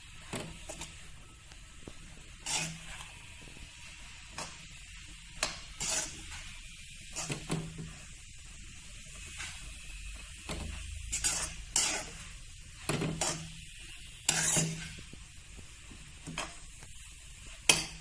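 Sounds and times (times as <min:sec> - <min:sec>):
faint sizzle: 0:00.0 - 0:18.0
metal spoon scraping pan: 0:00.0 - 0:18.0
spoon clanking on pan: 0:17.7 - 0:18.0.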